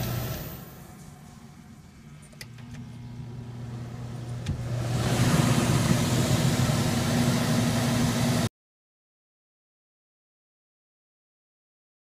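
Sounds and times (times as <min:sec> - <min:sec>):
fan motor humming: 0:00.0 - 0:08.5
loud rush of air: 0:04.6 - 0:08.5.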